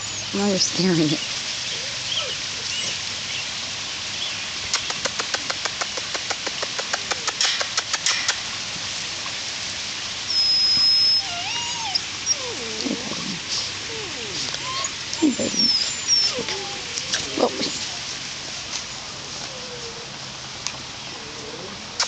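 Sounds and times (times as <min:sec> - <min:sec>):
puppy whimpering: 0:01.7 - 0:03.0, 0:10.3 - 0:18.0, 0:19.3 - 0:20.2, 0:21.1 - 0:22.0
rapid light clicks and crackles: 0:04.7 - 0:08.5.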